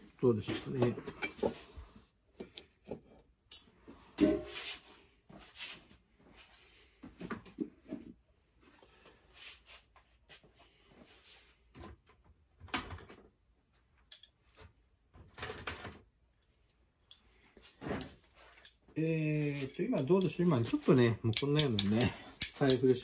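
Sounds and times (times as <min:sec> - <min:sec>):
small metal tools clinking: 0:14.1 - 0:14.4, 0:17.9 - 0:23.0.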